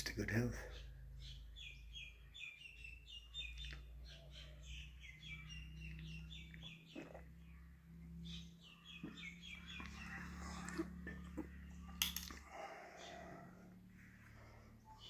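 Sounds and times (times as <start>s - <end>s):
low steady hum: 0.0s - 15.0s
small bird chirping: 0.4s - 12.0s.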